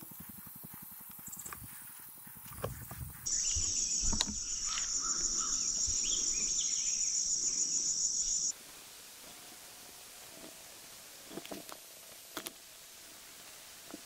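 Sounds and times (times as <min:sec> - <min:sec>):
high-pitched insect chorus: 0:00.0 - 0:08.6
background hiss: 0:00.0 - 0:14.0.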